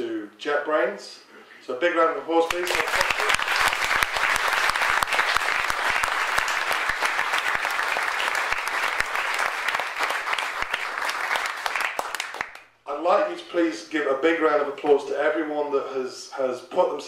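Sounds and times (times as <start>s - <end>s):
audience applauding: 2.5s - 12.6s.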